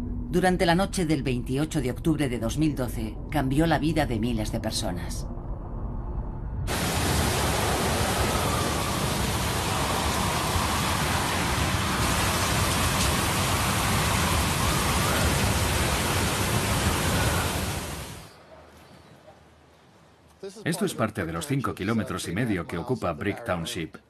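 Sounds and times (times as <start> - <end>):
hurricane wind: 5.4 - 18.4
wavering wind whistle: 6.7 - 18.0
driving rain: 6.7 - 18.3.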